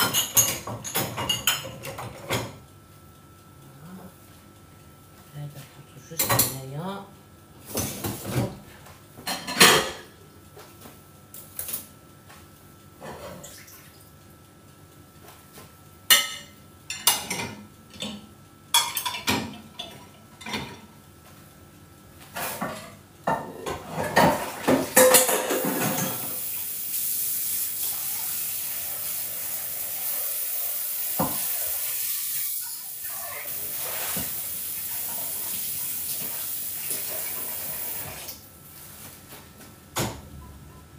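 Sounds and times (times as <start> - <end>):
dishes and cutlery clinking: 0.0 - 2.6, 9.2 - 10.1, 18.8 - 20.9, 22.3 - 26.3
kitchen tap running: 0.0 - 2.6, 24.2 - 38.5.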